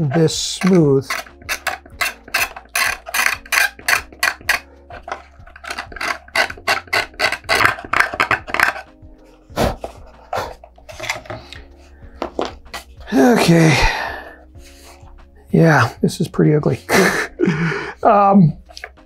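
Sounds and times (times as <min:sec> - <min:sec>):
hobby knife scraping: 0:00.0 - 0:11.4.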